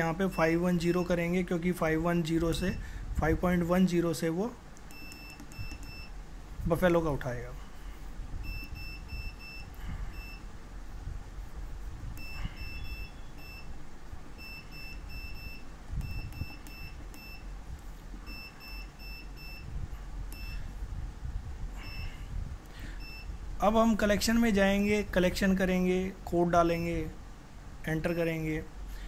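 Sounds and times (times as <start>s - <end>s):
high keypad beeps: 4.9s - 6.1s, 8.4s - 10.4s, 12.2s - 13.7s, 14.4s - 17.6s, 18.2s - 19.7s, 20.3s - 20.6s.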